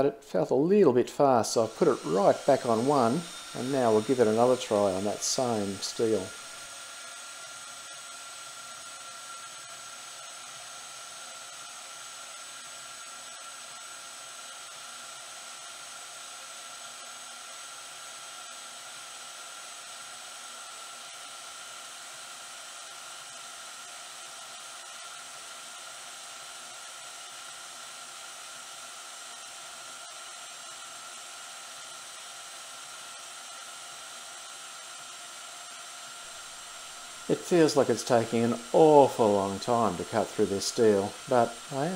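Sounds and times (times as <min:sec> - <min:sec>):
bandsaw cutting steel bar: 0:01.2 - 0:11.9, 0:36.2 - 0:41.9.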